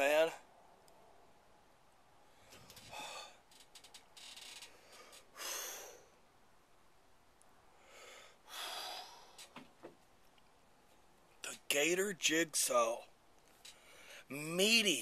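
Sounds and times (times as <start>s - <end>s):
man breathing hard: 2.2s - 3.5s, 4.7s - 6.2s, 7.7s - 9.6s, 13.7s - 14.3s.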